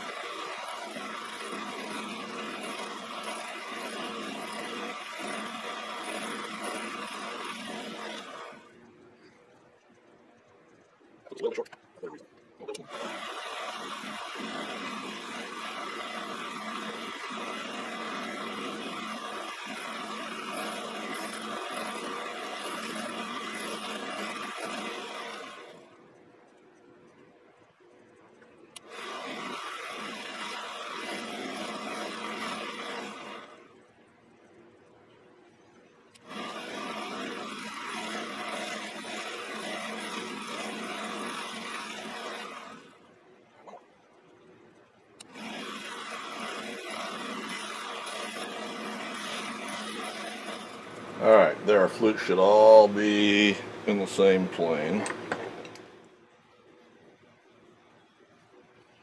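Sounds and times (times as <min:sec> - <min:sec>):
grinder grinding steel: 0:00.0 - 0:08.8, 0:11.3 - 0:26.2, 0:28.8 - 0:33.8, 0:36.1 - 0:43.8, 0:45.2 - 0:55.8.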